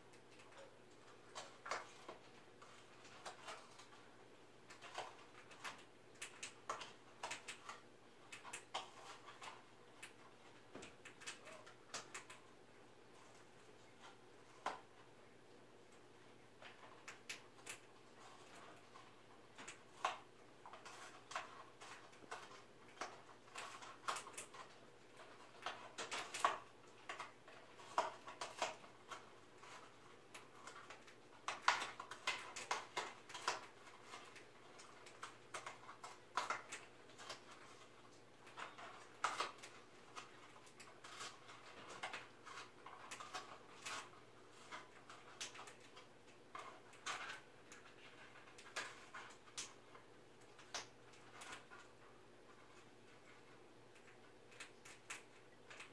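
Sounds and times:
bird chewing cardboard tube: 16.6s - 55.9s.

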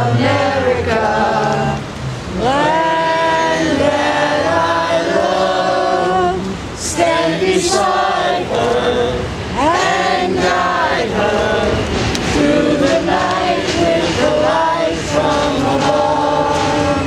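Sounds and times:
group singing unaccompanied: 0.0s - 17.0s.

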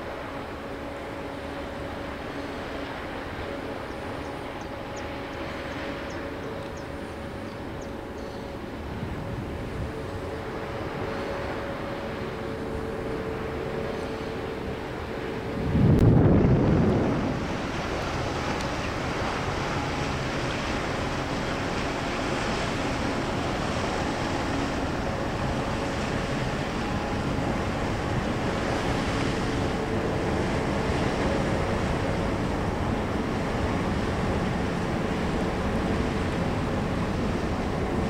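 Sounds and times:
canal water: 0.0s - 38.0s
faint low ship engine hum: 0.0s - 38.0s
wind on microphone: 13.8s - 38.0s.

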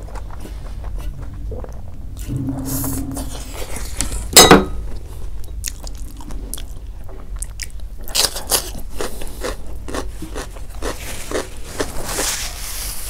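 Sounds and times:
close chewing with mouth clicks: 0.0s - 1.9s, 5.5s - 12.2s.

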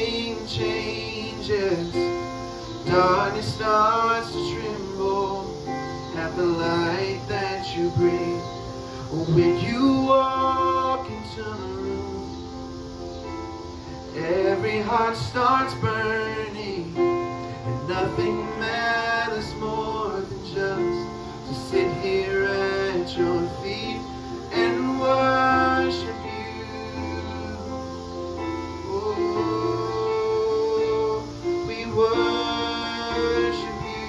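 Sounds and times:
voices singing worship song: 0.0s - 12.8s, 13.7s - 34.0s.

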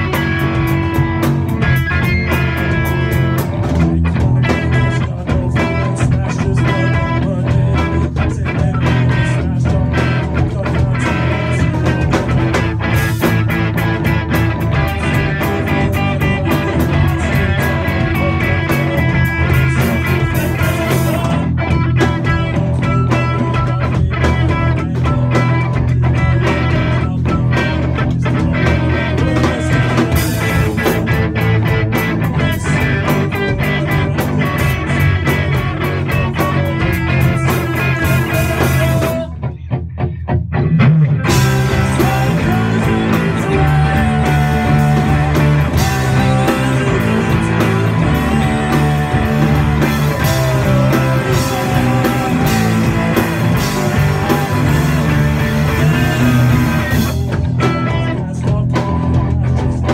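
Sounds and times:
rock band playing live: 0.0s - 59.9s.

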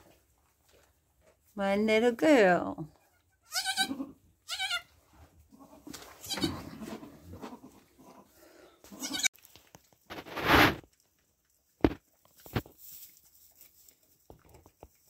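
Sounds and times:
goat kid bleating: 3.0s - 9.4s
rustling in hay: 10.0s - 11.0s, 11.6s - 14.3s.

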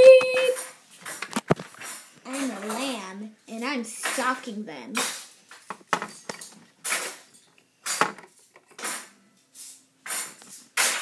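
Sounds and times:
plastic toys clattering: 5.0s - 11.0s.

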